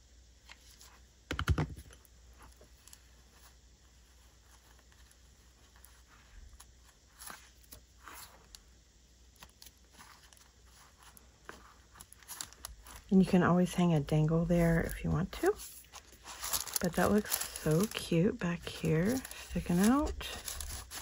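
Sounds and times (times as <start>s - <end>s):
paper and ribbon rustling: 9.4s - 21.0s.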